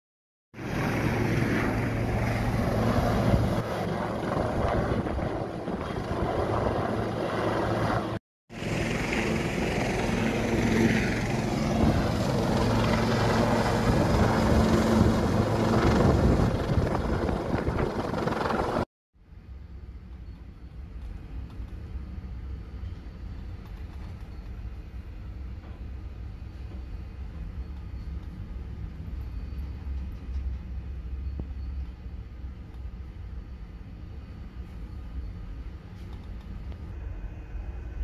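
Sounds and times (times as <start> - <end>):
helicopter flying: 0.6 - 18.9
low engine drone: 0.6 - 38.0
wind buffeting microphone: 0.7 - 8.2, 9.7 - 18.8.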